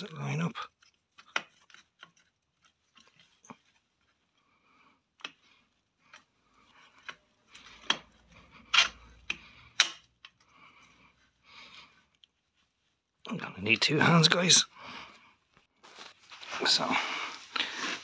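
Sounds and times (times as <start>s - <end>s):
metal parts clicking and knocking: 6.0s - 10.4s.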